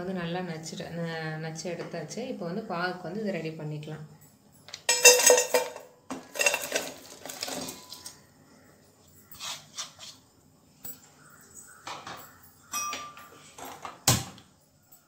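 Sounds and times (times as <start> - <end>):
jaggery rattling into pot: 4.8 - 8.2
steel pot clanking: 4.8 - 8.2.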